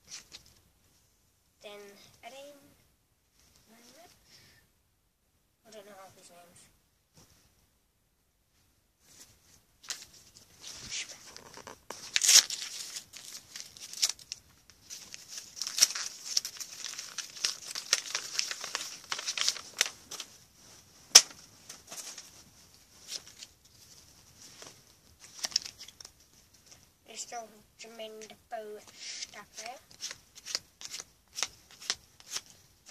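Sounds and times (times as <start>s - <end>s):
plastic wrapper crinkling: 9.9s - 20.4s, 21.1s - 26.4s.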